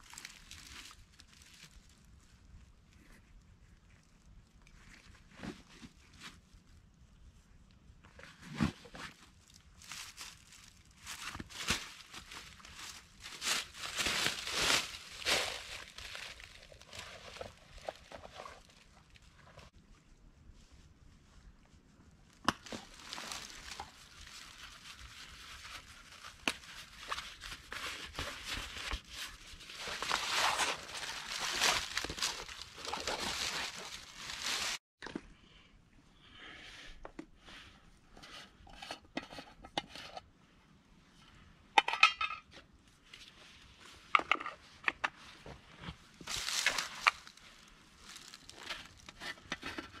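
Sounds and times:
fabric and leather rustling: 8.4s - 19.7s, 22.6s - 34.8s, 45.1s - 50.0s.

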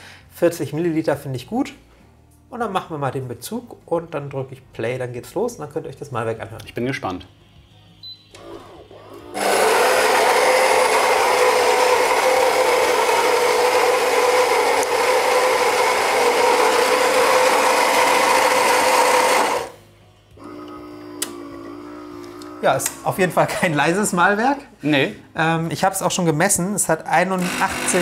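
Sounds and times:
machine humming: 8.3s - 23.2s, 27.4s - 28.0s
coffee grinder grinding beans: 8.4s - 19.8s, 20.4s - 23.1s, 27.3s - 28.0s.

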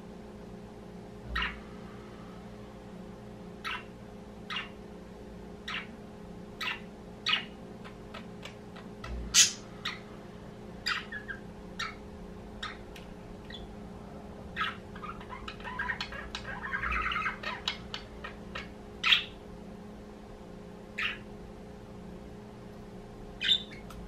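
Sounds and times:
budgerigars chirping: 1.3s - 1.6s, 3.6s - 3.9s, 4.5s - 4.8s, 5.6s - 5.9s, 6.6s - 10.1s, 10.8s - 12.0s, 12.6s - 12.8s, 13.4s - 13.7s, 14.5s - 19.4s, 21.0s - 21.3s, 23.4s - 23.9s.

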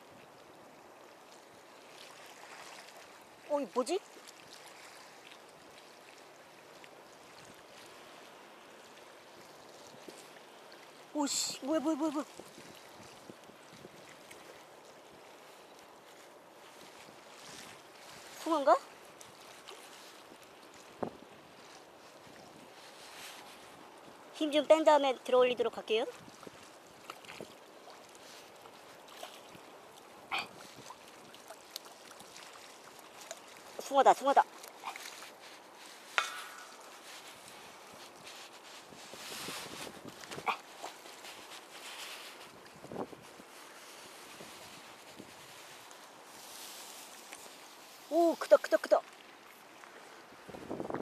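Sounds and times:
harbour water washing: 0.0s - 51.0s
wind noise: 20.9s - 22.8s, 36.2s - 43.6s, 50.4s - 51.0s.

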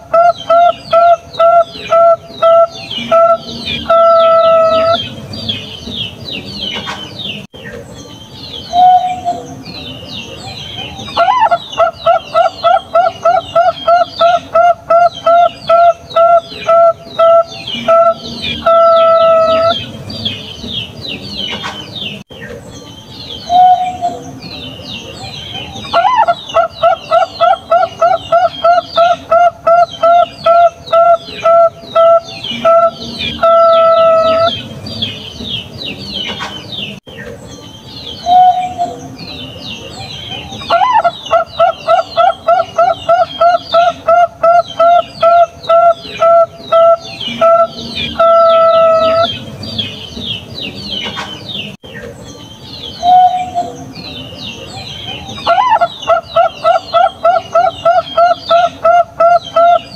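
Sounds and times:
dove cooing: 0.0s - 5.2s, 8.7s - 9.6s, 10.8s - 20.5s, 25.6s - 35.1s, 40.3s - 49.9s, 55.0s - 59.9s
small birds twittering: 0.0s - 59.9s.

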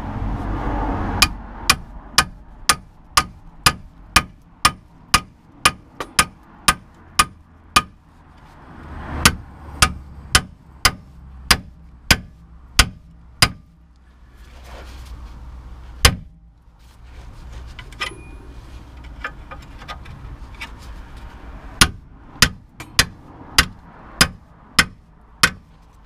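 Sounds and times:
hammer striking steel tool: 1.2s - 8.0s, 9.2s - 13.7s, 21.8s - 25.7s.

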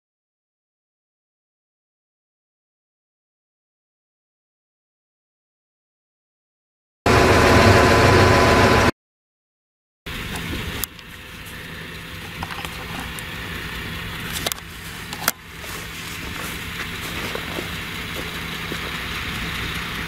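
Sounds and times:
engines running: 7.1s - 8.9s, 10.1s - 20.0s.

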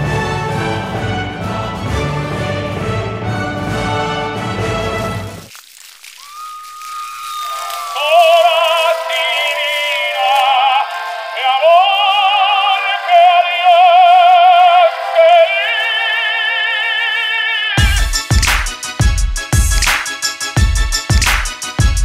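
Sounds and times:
operatic singing voice: 7.8s - 17.9s.

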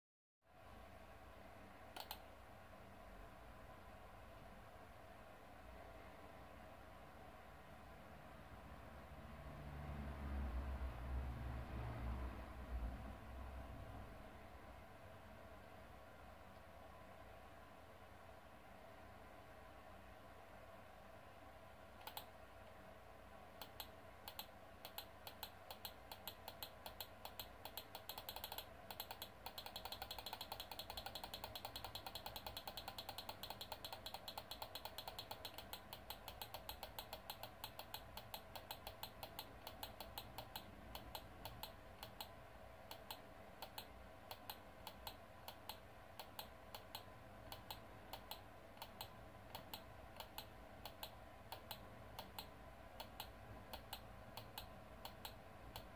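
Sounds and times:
faint electrical hum: 0.4s - 55.9s.

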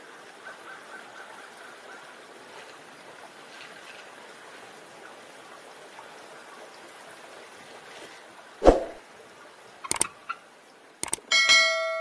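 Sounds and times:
loud whoosh: 8.6s - 9.0s
mouse clicks: 9.9s - 10.1s.

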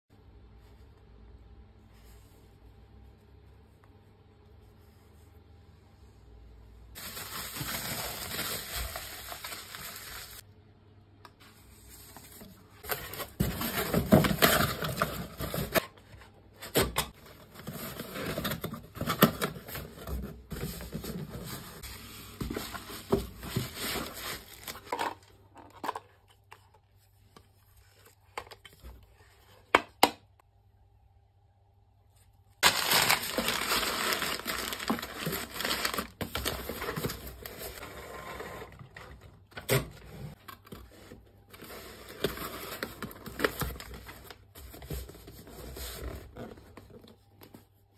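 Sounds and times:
packing paper crinkling: 7.0s - 10.4s, 17.3s - 25.1s, 32.6s - 37.8s
paper tape rustling: 32.6s - 37.8s.

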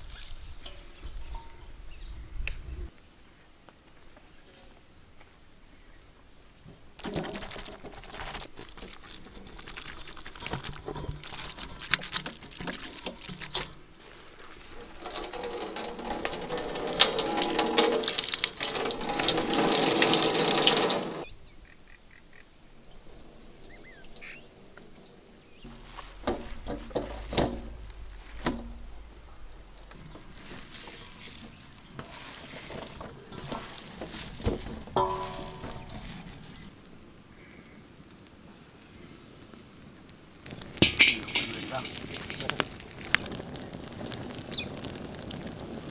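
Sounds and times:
water streaming into steel bowl: 7.0s - 21.3s, 29.8s - 36.7s
knocks of handling: 24.9s - 32.1s.

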